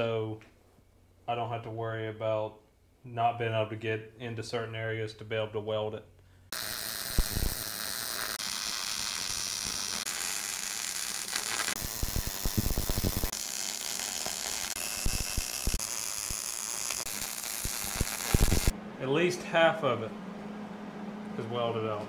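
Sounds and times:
arc welding crackling hiss: 6.5s - 18.7s.

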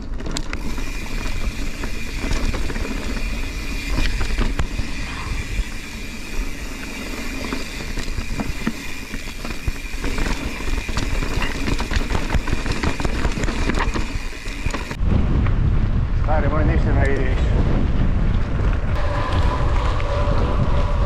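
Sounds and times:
bike rattles and knocks: 0.0s - 15.0s
bike rumbling over rocky trail: 0.0s - 15.0s.

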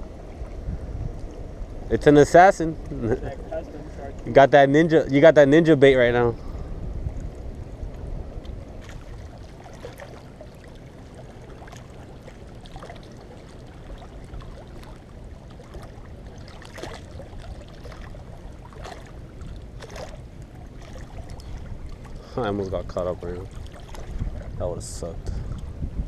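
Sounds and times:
wind rumble on microphone: 0.0s - 26.0s
waves lapping on rocks: 7.4s - 24.7s
short splashes: 8.4s - 24.6s.

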